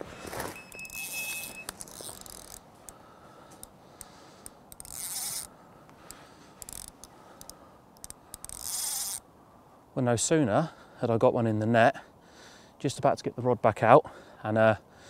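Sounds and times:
footsteps: 0:00.0 - 0:02.2
fishing tackle being handled: 0:00.6 - 0:09.2.

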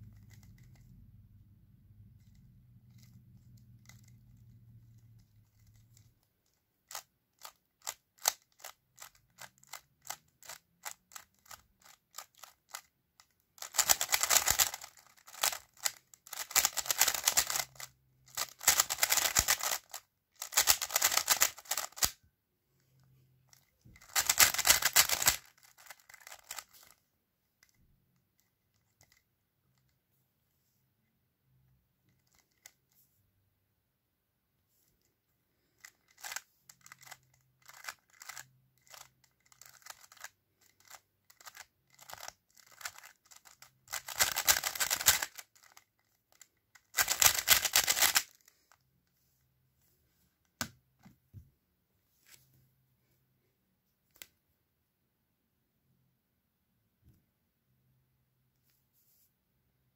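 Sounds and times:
plastic puzzle cube clicking turns: 0:00.0 - 0:00.8, 0:02.2 - 0:22.2, 0:23.5 - 0:27.0, 0:27.6 - 0:29.9, 0:32.1 - 0:32.8, 0:35.7 - 0:48.8
rapid clattering cube turns: 0:00.0 - 0:00.8, 0:02.2 - 0:22.2, 0:23.5 - 0:27.0, 0:28.4 - 0:29.9, 0:32.1 - 0:32.9, 0:35.6 - 0:48.8.

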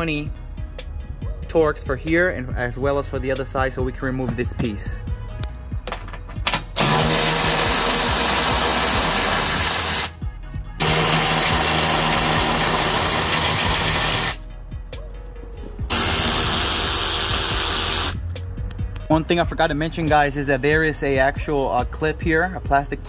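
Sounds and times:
cordless electric ratchet running: 0:06.8 - 0:10.1, 0:10.8 - 0:14.4, 0:15.9 - 0:18.2.

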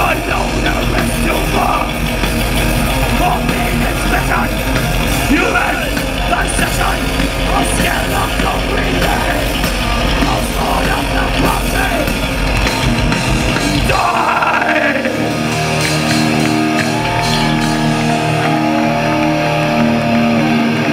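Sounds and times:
metal band playing live: 0:00.0 - 0:20.9
shouted vocals: 0:03.1 - 0:12.2, 0:13.7 - 0:20.9.

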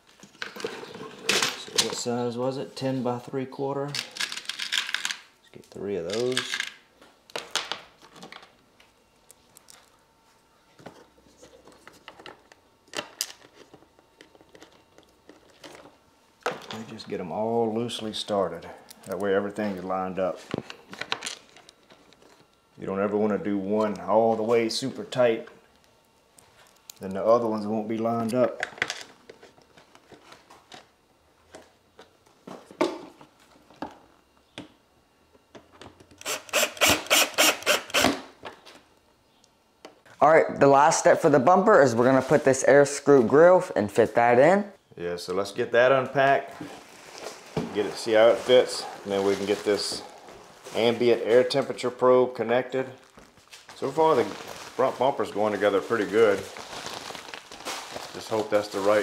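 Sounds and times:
cordless drill driving screw: 0:36.2 - 0:38.2.

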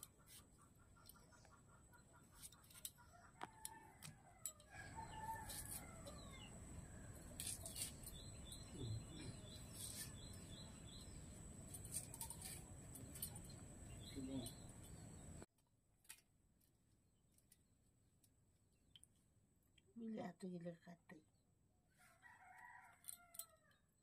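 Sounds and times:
rooster crowing: 0:03.2 - 0:07.1, 0:22.0 - 0:23.8.

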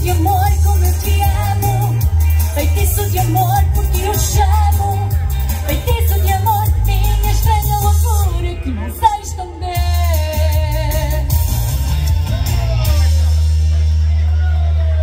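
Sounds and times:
person singing: 0:00.0 - 0:11.4
pop music with heavy bass: 0:00.0 - 0:15.0.

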